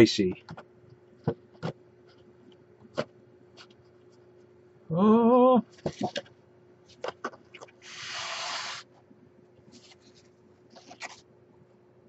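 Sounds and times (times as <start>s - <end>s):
rushing hiss: 7.8s - 8.8s.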